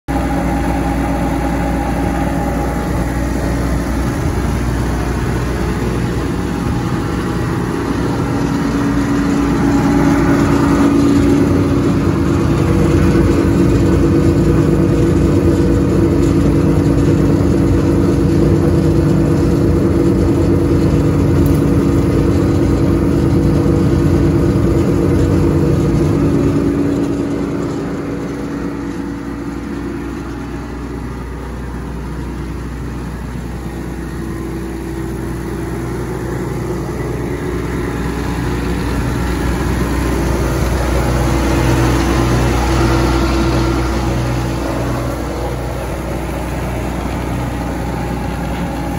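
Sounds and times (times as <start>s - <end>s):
wood chipper running: 0.1s - 48.9s.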